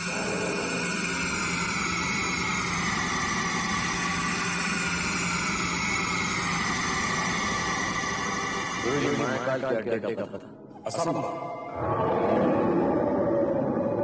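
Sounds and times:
droning rumble: 0:00.0 - 0:09.6
low hum: 0:00.0 - 0:14.0.

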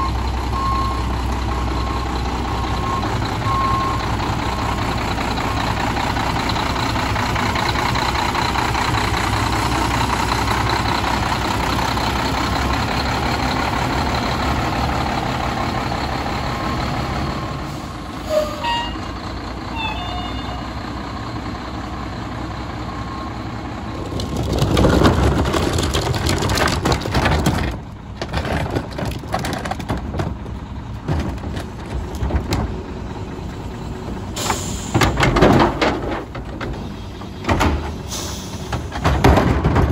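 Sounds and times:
diesel truck engine running: 0:00.0 - 0:39.9
cart knocking and rattling: 0:23.9 - 0:33.0, 0:34.5 - 0:39.9.

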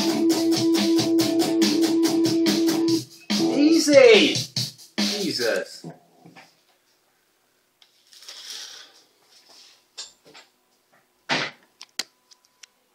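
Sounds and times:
loud thump: 0:11.3 - 0:11.6.

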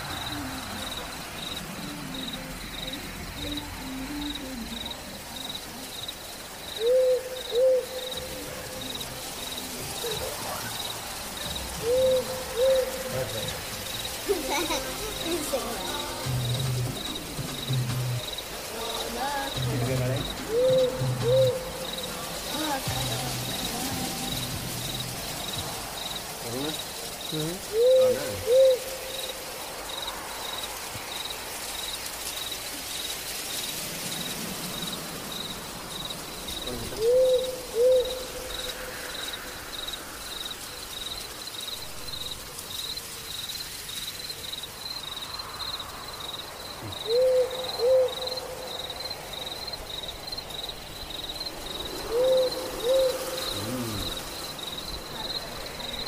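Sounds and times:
crickets chirping: 0:00.0 - 0:56.0
owl hooting: 0:06.7 - 0:11.0, 0:11.6 - 0:18.4, 0:19.0 - 0:25.0, 0:27.6 - 0:29.4, 0:36.8 - 0:39.4, 0:46.8 - 0:49.1, 0:51.7 - 0:54.8.

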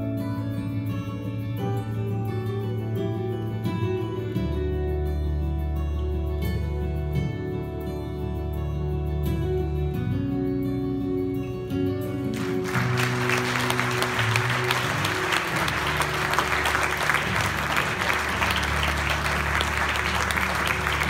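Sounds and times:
instrumental music: 0:00.2 - 0:21.0
audience applause: 0:12.4 - 0:21.0.

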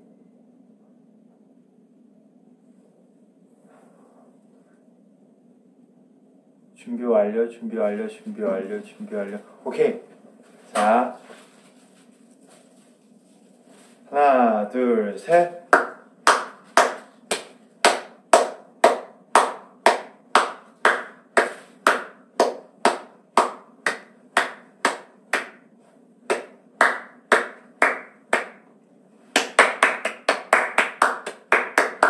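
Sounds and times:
person clapping hands: 0:15.7 - 0:25.7, 0:26.3 - 0:28.6, 0:29.3 - 0:32.0
burst of applause: 0:29.4 - 0:32.0.

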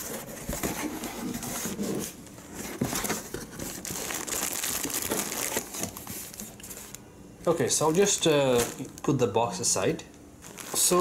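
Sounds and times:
plastic wrapping crinkling: 0:02.8 - 0:07.0, 0:07.6 - 0:09.7, 0:10.4 - 0:11.0.

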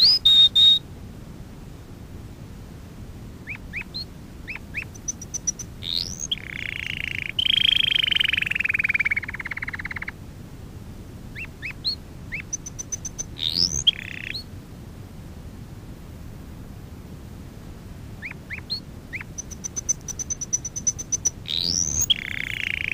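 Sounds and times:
canary singing: 0:00.0 - 0:00.8, 0:03.4 - 0:10.2, 0:11.3 - 0:14.5, 0:18.2 - 0:22.9.

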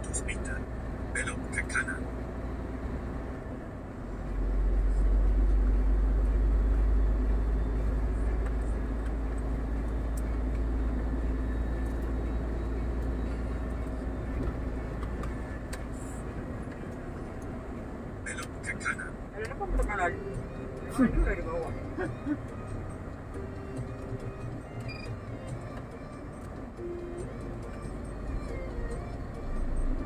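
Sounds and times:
road noise: 0:00.0 - 0:30.0
truck engine rumble: 0:00.0 - 0:30.0.

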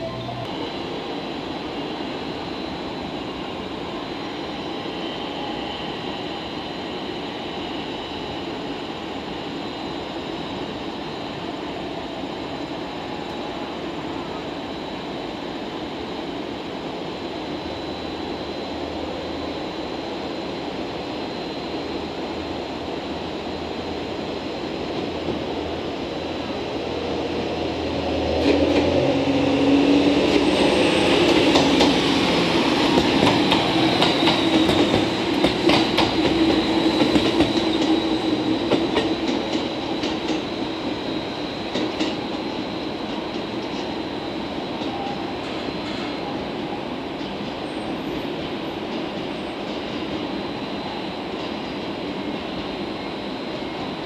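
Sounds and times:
diesel railcar engine humming: 0:00.0 - 0:04.2.

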